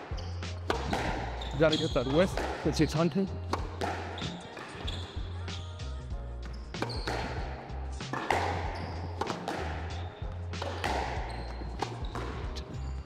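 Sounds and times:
squash racket hitting ball: 0.0 - 5.6, 6.7 - 12.9
ball hitting wall: 0.6 - 1.4, 2.3 - 2.6, 3.4 - 4.7, 6.8 - 12.5
music with steady bass line: 5.2 - 8.7.

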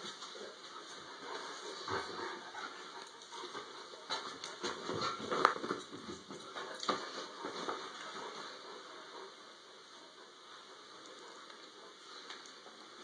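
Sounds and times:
dog sniffing: 0.0 - 5.2
bedding rustling: 0.0 - 9.6.

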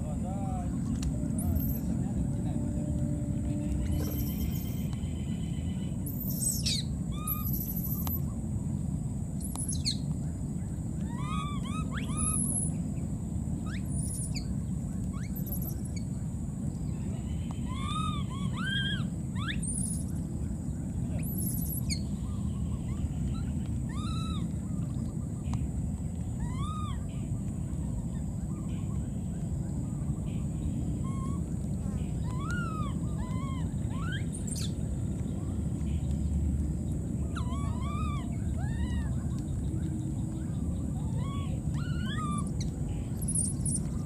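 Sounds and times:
steady low rumble: 0.0 - 44.0
short chirping calls: 3.7 - 8.3, 9.4 - 10.1, 11.1 - 12.9, 17.1 - 20.3, 21.1 - 24.5, 30.2 - 35.1, 37.2 - 44.0.

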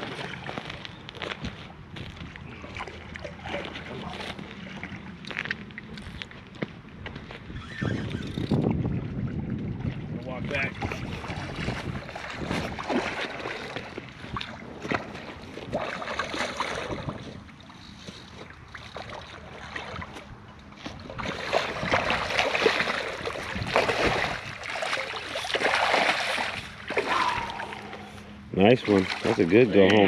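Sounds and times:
wind buffeting microphone: 6.0 - 15.9, 20.0 - 24.8
fish splashing water: 10.8 - 29.8.

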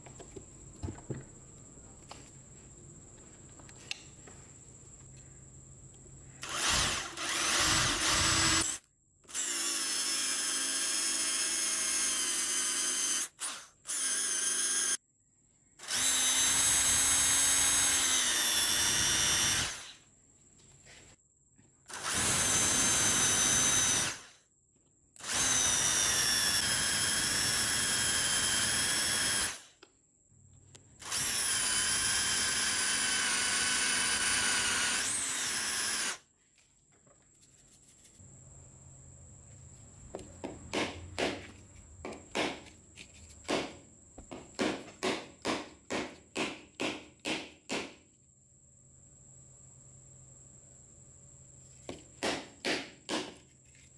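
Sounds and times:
electric drill whining: 6.4 - 15.0, 15.8 - 20.0, 21.9 - 24.4, 25.2 - 29.7, 31.0 - 36.2.

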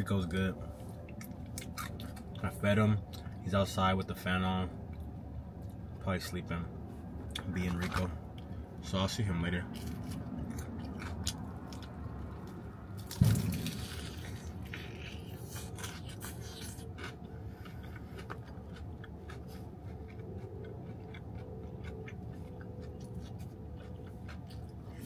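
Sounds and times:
low hum: 0.0 - 25.0
chewing: 1.0 - 3.4, 9.7 - 25.0
crunching bite: 9.7 - 24.8.

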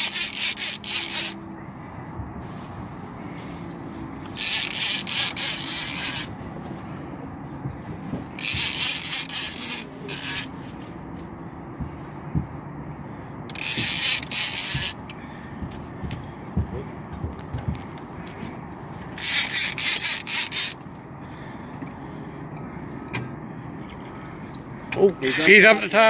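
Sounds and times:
fishing reel whirring: 0.0 - 1.5, 4.3 - 6.4, 8.3 - 10.6, 13.5 - 15.0, 19.2 - 20.8, 25.2 - 26.0.

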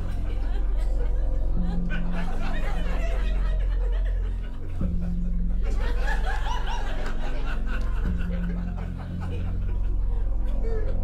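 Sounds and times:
audience laughing: 0.0 - 11.0
background music low notes: 0.0 - 11.0.

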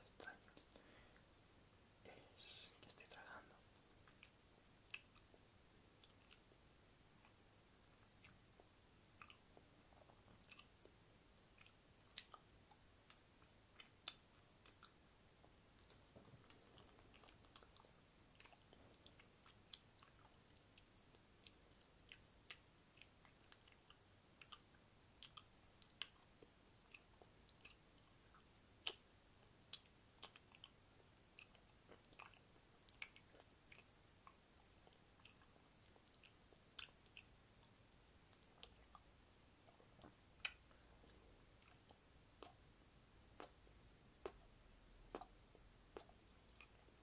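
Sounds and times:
wet tongue and lip clicks: 4.0 - 7.4, 8.0 - 40.8, 41.5 - 42.7, 43.3 - 43.6, 44.2 - 47.0.

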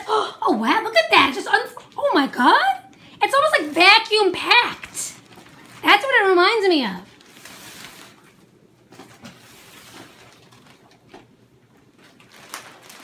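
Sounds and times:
plastic wrap crinkling: 2.8 - 13.0.

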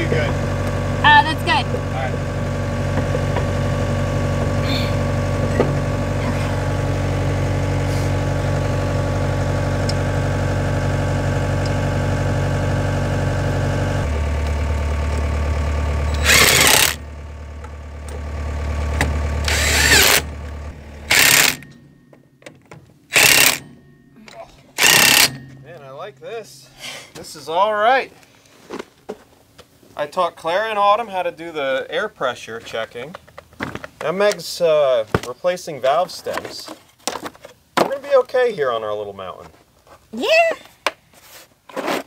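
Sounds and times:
engine idling: 0.0 - 21.8
impact wrench bursts: 16.1 - 17.0, 19.4 - 20.4, 21.0 - 21.8, 23.1 - 23.8, 24.8 - 25.8.

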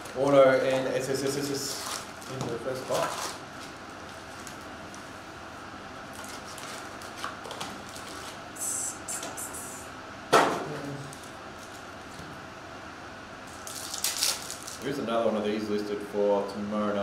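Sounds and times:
foil wrappers crinkling: 0.0 - 5.2, 6.1 - 8.4, 11.0 - 12.2, 13.5 - 15.0
faint steady hum: 0.0 - 17.0.

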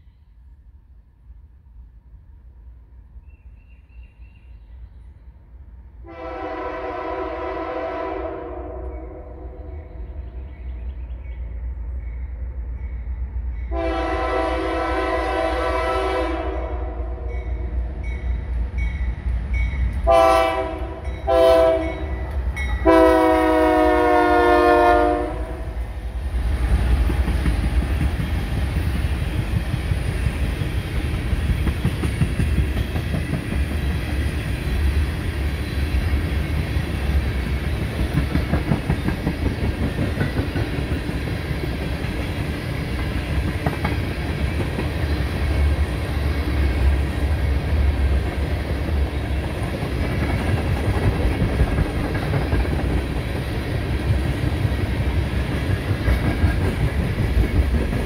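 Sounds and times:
locomotive air horn blasts: 6.0 - 9.4, 13.7 - 17.3, 20.0 - 22.2, 22.8 - 25.8
wheels clacking over rail joints: 36.5 - 45.2.

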